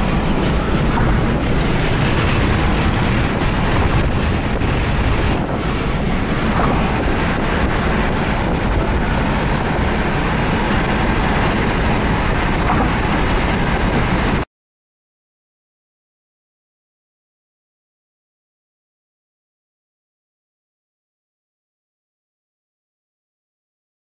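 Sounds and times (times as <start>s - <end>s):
wind rushing over microphone: 0.0s - 14.5s.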